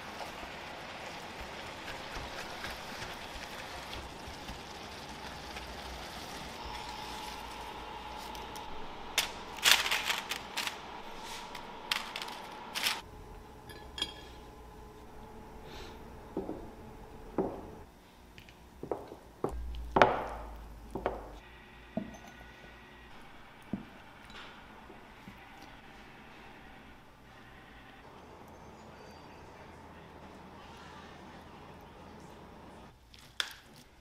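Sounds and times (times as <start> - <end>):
meat and onion sizzling in a pot: 0.0 - 8.9.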